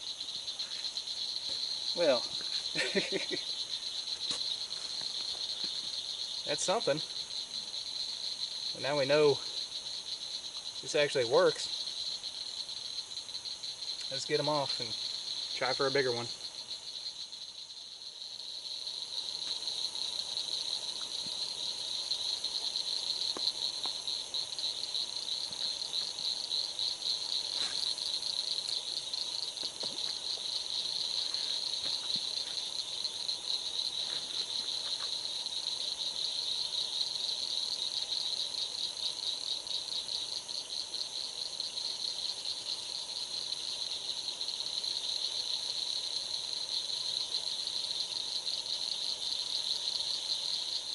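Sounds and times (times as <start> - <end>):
night insects trilling: 0.0 - 50.9.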